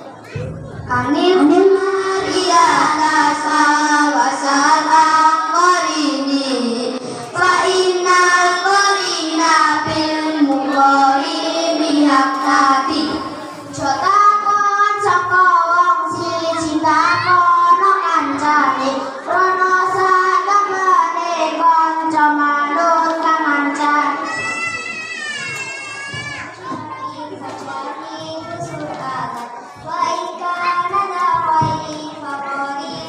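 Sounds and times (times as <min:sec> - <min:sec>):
children singing into microphones: 0:00.0 - 0:33.0.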